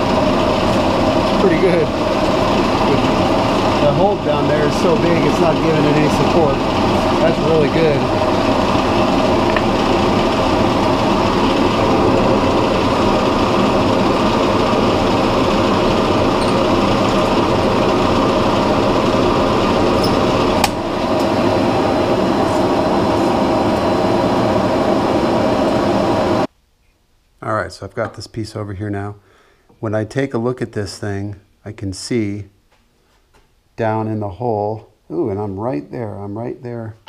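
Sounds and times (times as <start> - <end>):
drill press boring into wood: 0.0 - 21.3.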